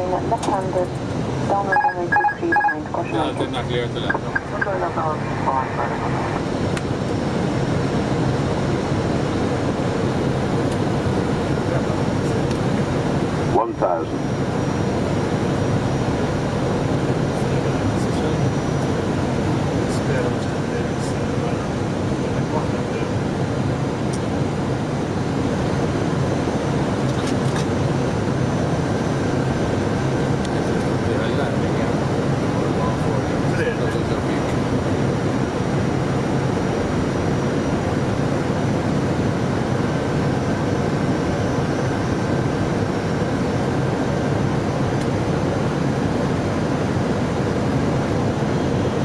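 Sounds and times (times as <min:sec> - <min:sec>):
aircraft cockpit engine rumble: 0:00.0 - 0:49.0
air rushing past cockpit: 0:04.0 - 0:13.5.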